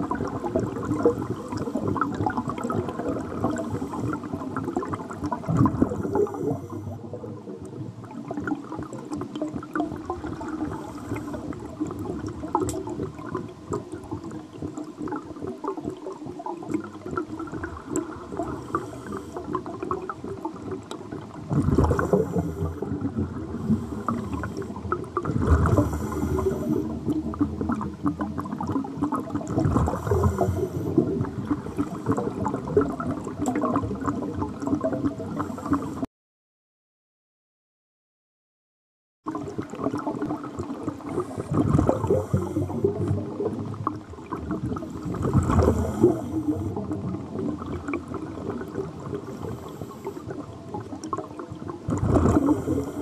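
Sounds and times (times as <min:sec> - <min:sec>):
exhaled bubbles bursting: 0:00.0 - 0:36.0, 0:39.3 - 0:53.0
underwater scuba breathing: 0:00.2 - 0:07.6, 0:10.3 - 0:13.4, 0:16.7 - 0:20.2, 0:20.8 - 0:28.4, 0:29.5 - 0:36.1, 0:41.0 - 0:51.2, 0:51.9 - 0:53.0.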